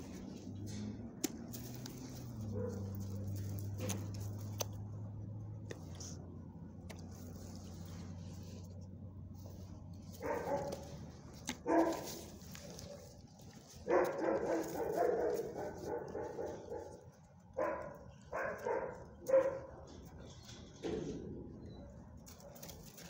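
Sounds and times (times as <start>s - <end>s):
dog barking: 2.4s - 4.0s, 10.2s - 10.9s, 11.5s - 13.1s, 13.8s - 20.0s.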